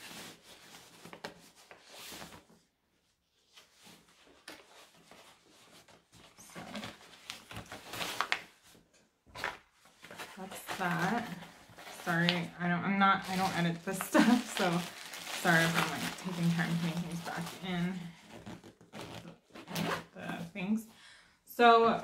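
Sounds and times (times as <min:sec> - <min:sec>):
fabric bag rustling: 0:03.6 - 0:08.8, 0:09.4 - 0:20.5
plastic packaging rustling: 0:03.6 - 0:19.8.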